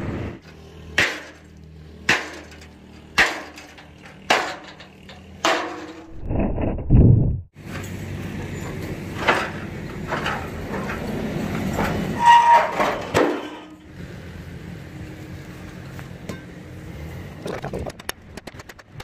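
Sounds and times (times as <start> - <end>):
steel rails knocking and scraping: 0.4 - 6.6, 8.6 - 13.9, 17.4 - 19.0.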